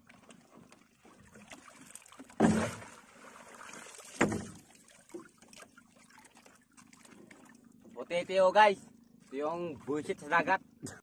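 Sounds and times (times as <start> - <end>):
faint water sounds: 0.0 - 11.0
crab traps splashing into sea: 1.4 - 5.2.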